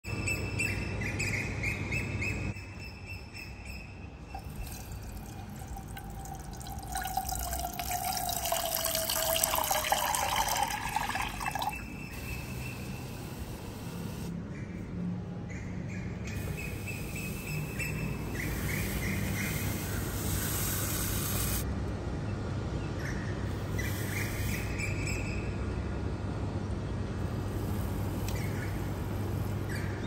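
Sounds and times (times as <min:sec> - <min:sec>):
water pouring into a saucepan: 0:04.4 - 0:11.8.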